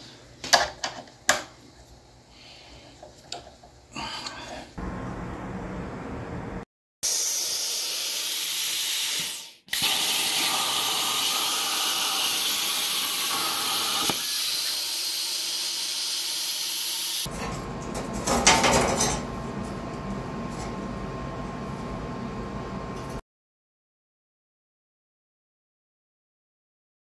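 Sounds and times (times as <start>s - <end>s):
plasma cutter hissing: 7.0s - 17.3s.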